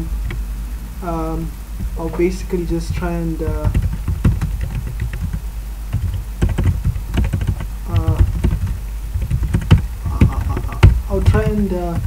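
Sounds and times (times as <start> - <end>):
computer keyboard typing: 2.9 - 12.0.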